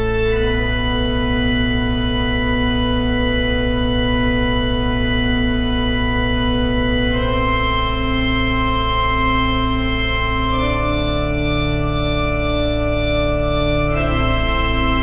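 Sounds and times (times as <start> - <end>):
organ-like keyboard chords: 0.0 - 15.0.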